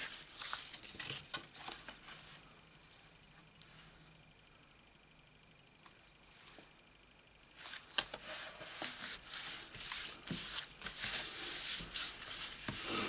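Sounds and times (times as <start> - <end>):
hands rubbing on paper: 7.6 - 13.0.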